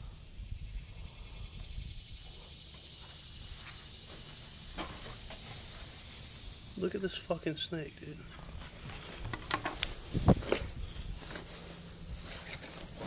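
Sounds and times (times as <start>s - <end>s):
wind rumble on microphone: 0.0s - 2.6s, 8.8s - 11.3s
insects droning: 0.0s - 13.0s.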